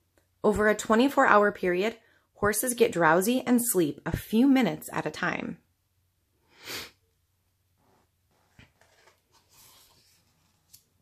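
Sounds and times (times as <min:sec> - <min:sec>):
book page turning: 0:08.3 - 0:11.0.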